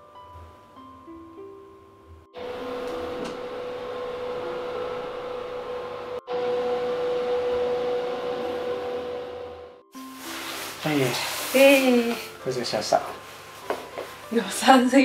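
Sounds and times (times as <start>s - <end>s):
mechanical hum with hiss: 2.4s - 9.6s, 10.2s - 14.3s.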